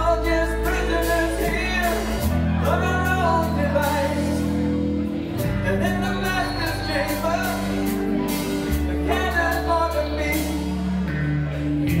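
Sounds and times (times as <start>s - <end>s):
bass long notes: 0.0s - 12.0s
lead vocal singing: 0.0s - 12.0s
live rock band playing: 0.0s - 12.0s.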